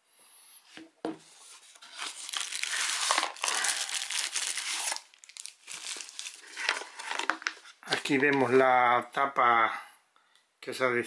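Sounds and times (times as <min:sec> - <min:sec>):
plastic bag crinkling: 0:01.8 - 0:08.3.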